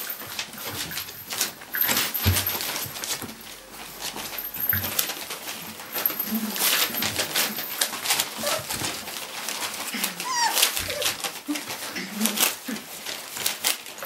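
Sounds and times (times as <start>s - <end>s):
paws scratching on bedding: 0.0s - 14.0s
puppies squeaking and grunting: 0.1s - 13.9s
puppy squealing: 8.4s - 8.8s, 9.6s - 11.2s.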